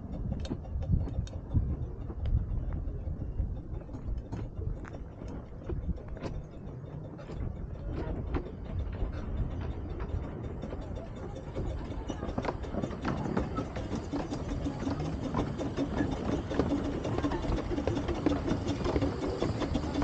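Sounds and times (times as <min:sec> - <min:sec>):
sharp clicks and knocks: 0:00.0 - 0:02.8
miniature steam train rumbling: 0:00.0 - 0:20.0.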